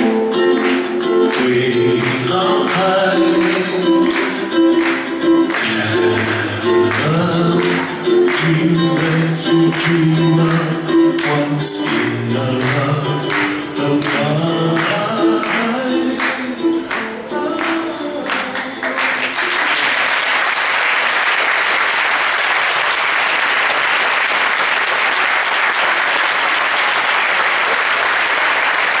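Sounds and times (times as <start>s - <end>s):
audience applause: 0.5s - 29.0s
dance song with singing: 1.3s - 4.5s, 5.5s - 19.4s.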